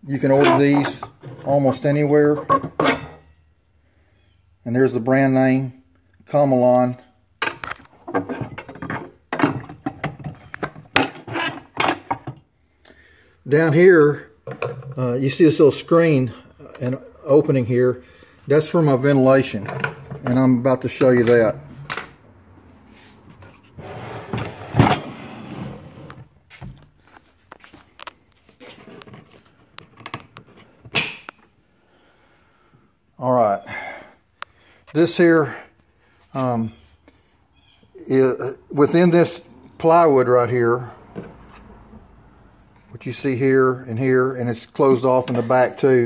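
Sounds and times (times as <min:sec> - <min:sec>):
handling rustling and scraping: 0:00.1 - 0:03.4, 0:07.4 - 0:12.4, 0:22.7 - 0:31.0
wooden cabinet parts clattering: 0:00.2 - 0:03.3, 0:07.4 - 0:12.4, 0:14.4 - 0:15.0, 0:19.5 - 0:22.2, 0:23.3 - 0:27.8.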